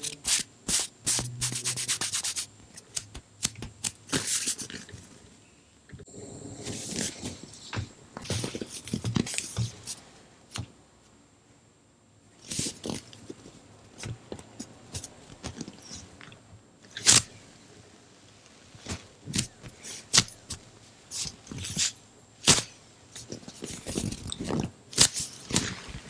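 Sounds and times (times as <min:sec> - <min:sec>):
crinkly crackles and pops: 0:23.2 - 0:26.0.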